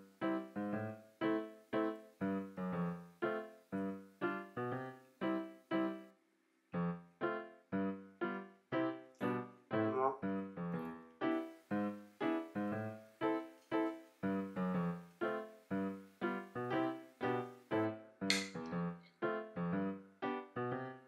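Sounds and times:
light keyboard tune: 0.0 - 6.1, 6.8 - 21.0.

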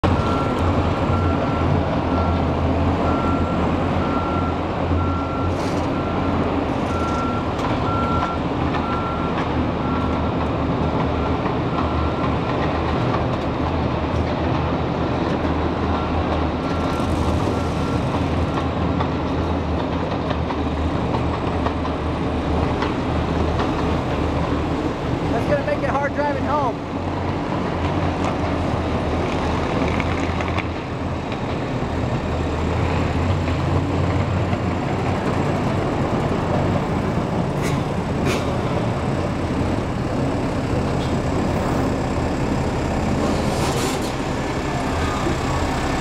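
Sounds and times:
forklift engine running: 0.0 - 46.0
reversing alarm beeping: 0.1 - 2.4, 3.0 - 10.3, 15.9 - 18.2.

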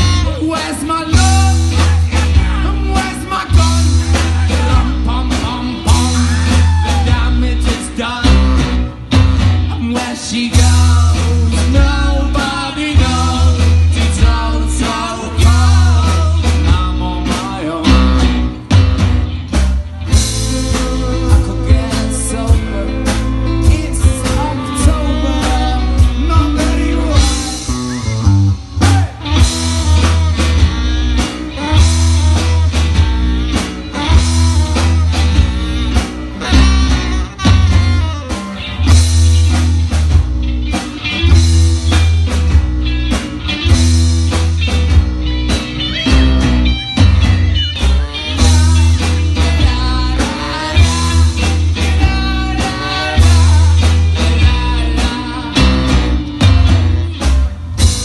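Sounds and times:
saxophone: 0.0 - 2.5, 17.8 - 19.5, 23.5 - 39.6, 45.2 - 58.0
live blues-rock band: 0.0 - 58.0.

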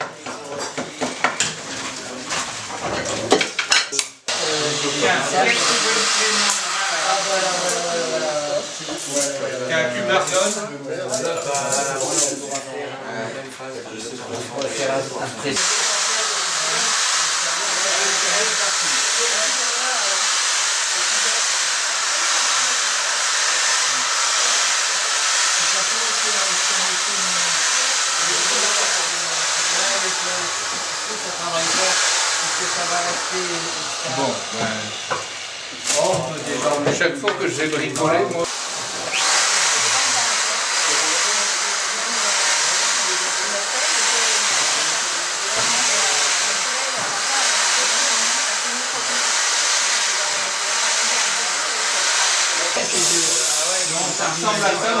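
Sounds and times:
faint voices talking: 0.0 - 55.0
loud rushing hiss: 4.3 - 9.2, 15.6 - 36.4, 38.4 - 55.0.

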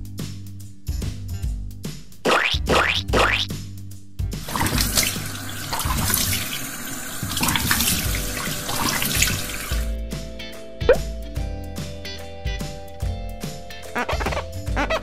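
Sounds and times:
tap water running into sink: 4.4 - 9.9.

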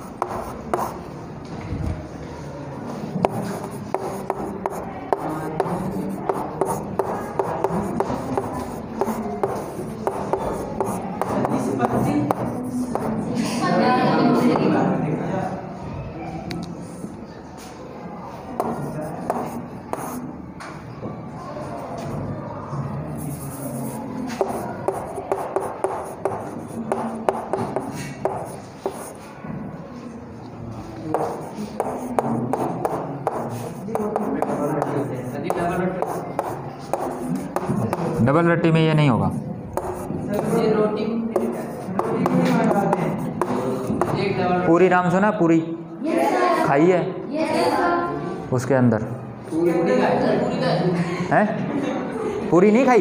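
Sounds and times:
chalk writing on chalkboard: 0.0 - 1.1, 2.9 - 13.6, 18.5 - 20.3, 23.2 - 29.3, 30.8 - 38.4, 39.7 - 44.4.

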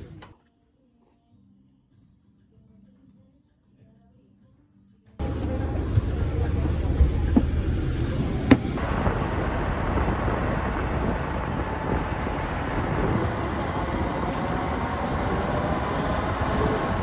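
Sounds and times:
bus rumble from inside: 5.2 - 17.0.

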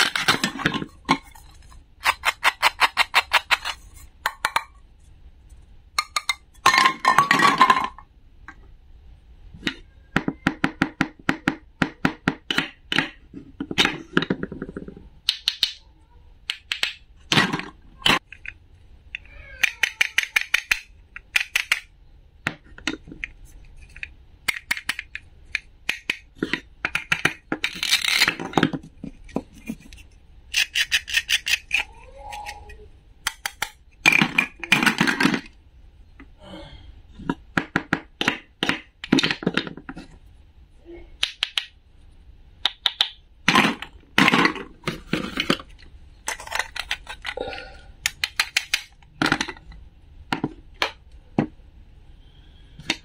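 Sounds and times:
plastic toy pieces clicking: 2.0 - 4.7, 12.4 - 15.8, 16.4 - 21.9, 22.5 - 35.6, 41.2 - 41.7, 42.6 - 47.4, 48.0 - 49.8.

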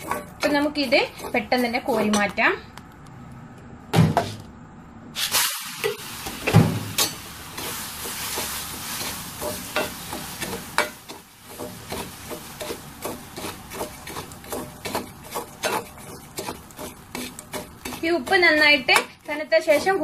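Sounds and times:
metal spoon scraping a pan: 0.0 - 2.6, 5.2 - 20.0
gritty hiss of roasting salt: 5.2 - 20.0.

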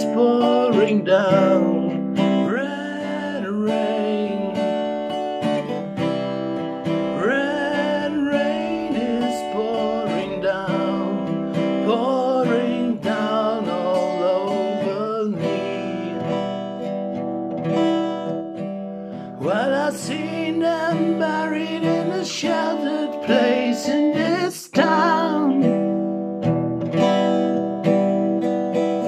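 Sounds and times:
man singing: 0.0 - 5.0, 6.9 - 17.0, 19.2 - 26.0
acoustic guitar strumming chords: 0.0 - 29.0.

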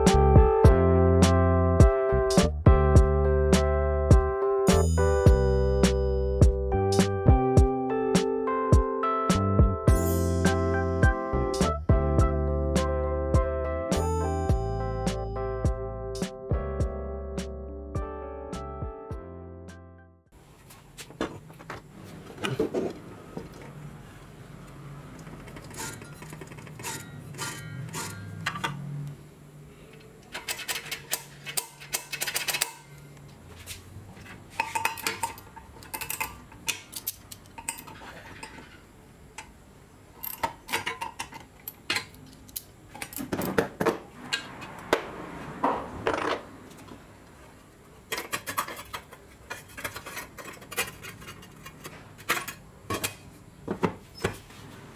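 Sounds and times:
metal clinks and clanks: 25.5 - 28.8.

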